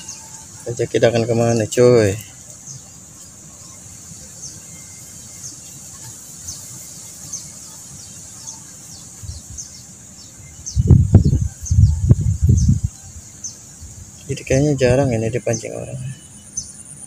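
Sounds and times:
high-pitched insect drone: 0:00.0 - 0:10.2.

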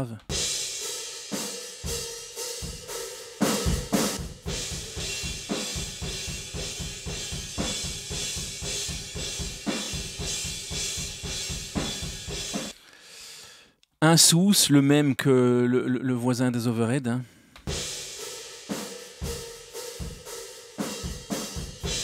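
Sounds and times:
rock drum kit playing: 0:00.0 - 0:12.8, 0:17.6 - 0:22.0.

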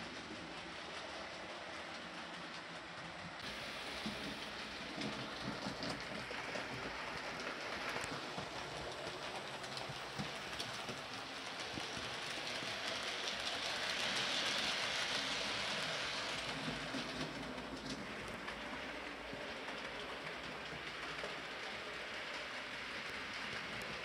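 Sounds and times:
model train whirring on track: 0:00.0 - 0:24.0.

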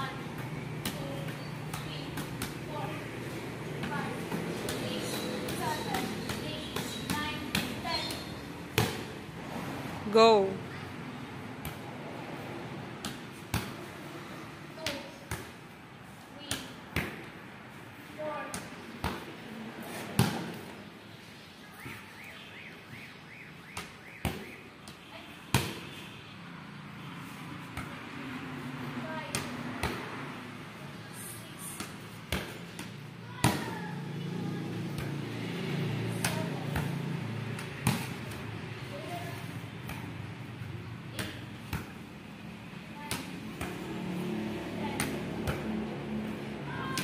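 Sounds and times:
volleyball slaps: 0:03.8 - 0:09.2, 0:18.3 - 0:20.7, 0:31.6 - 0:33.9, 0:34.8 - 0:39.2, 0:44.8 - 0:45.9, 0:46.7 - 0:47.0.

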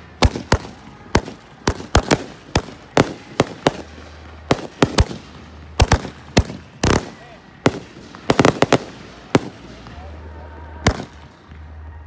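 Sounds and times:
fireworks bangs: 0:00.0 - 0:12.0.

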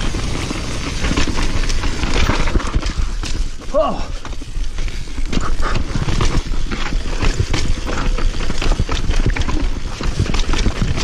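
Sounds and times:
mountain bike rattling over rough trail: 0:00.0 - 0:11.0.

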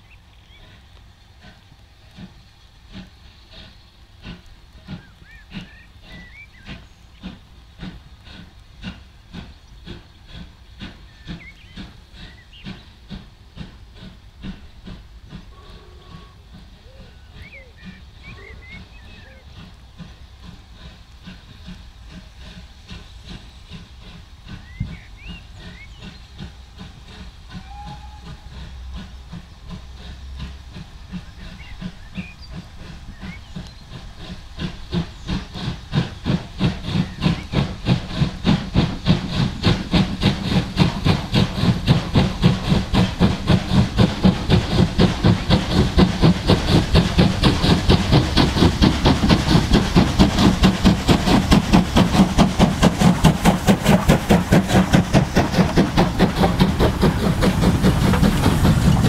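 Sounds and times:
faint birdsong: 0:00.0 - 0:00.9, 0:02.2 - 0:14.1, 0:14.7 - 0:21.0, 0:22.4 - 0:26.9, 0:31.1 - 0:37.8
steam locomotive chuffing: 0:00.0 - 0:59.0.

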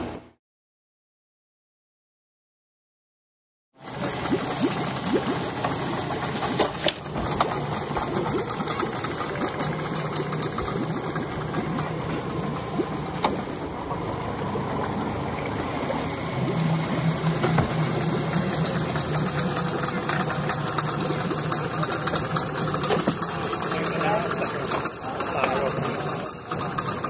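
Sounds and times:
outboard motor idling: 0:03.8 - 0:27.0.

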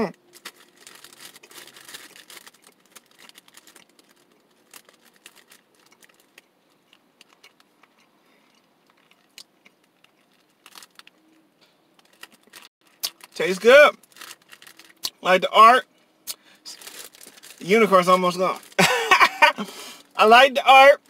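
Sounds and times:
faint chewing crunches: 0:00.2 - 0:13.4.

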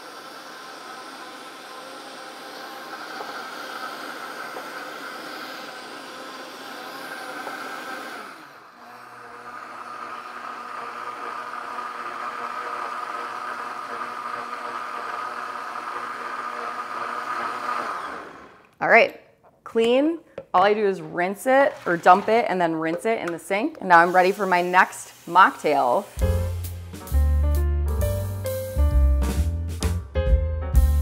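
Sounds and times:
blender motor whirring: 0:00.0 - 0:18.8, 0:21.4 - 0:26.8.

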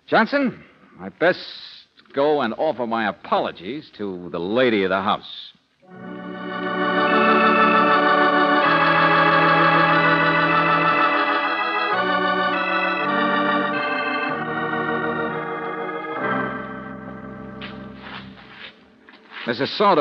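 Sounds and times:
organ playing held chords: 0:05.8 - 0:19.1.

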